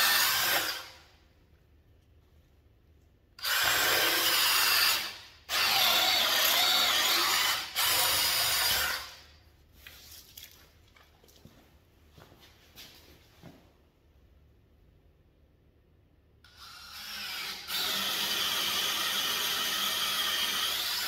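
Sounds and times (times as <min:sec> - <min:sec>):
cordless drill boring into wood: 0:00.0 - 0:00.9, 0:03.4 - 0:09.2, 0:16.5 - 0:21.0.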